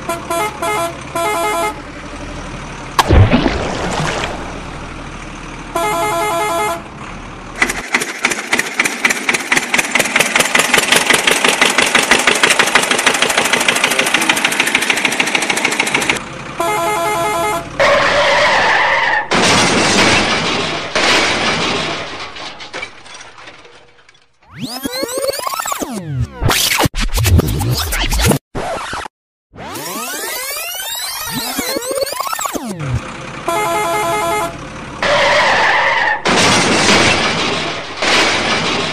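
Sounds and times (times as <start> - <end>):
vehicle horn honking: 0.0 - 1.8, 5.7 - 6.9, 16.6 - 17.8, 33.4 - 34.6
rapid rattling engine-like pulses: 6.8 - 16.6, 32.4 - 33.9.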